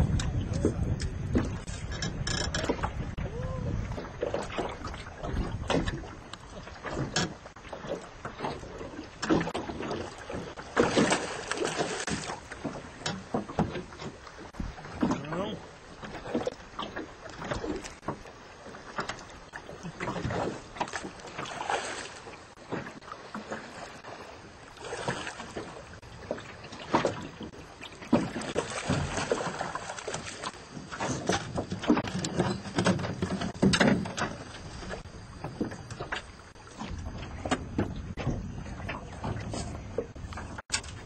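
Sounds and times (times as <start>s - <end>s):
wind on microphone: 0.0s - 7.2s, 31.0s - 41.0s
water splashing against boat: 0.0s - 41.0s.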